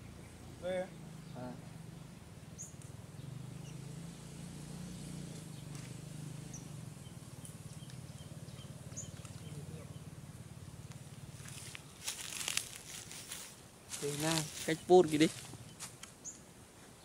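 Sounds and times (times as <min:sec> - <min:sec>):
steady low hum: 0:00.0 - 0:16.9
faint evenly spaced ticks: 0:05.3 - 0:13.5.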